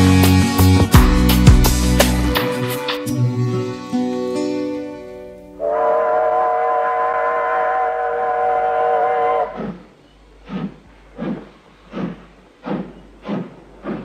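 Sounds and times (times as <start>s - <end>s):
steam locomotive whistle: 5.6s - 9.6s.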